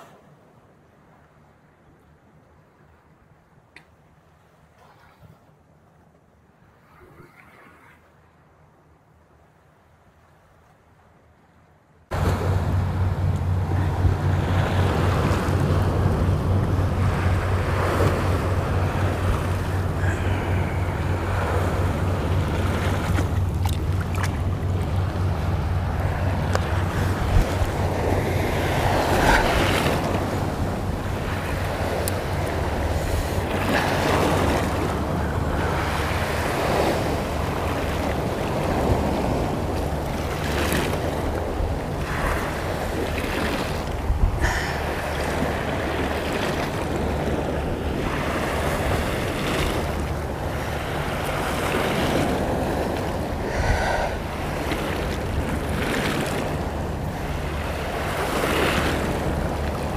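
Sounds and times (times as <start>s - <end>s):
waves splashing against rocks: 12.1s - 59.9s
wind rumbling on microphone: 12.1s - 59.9s.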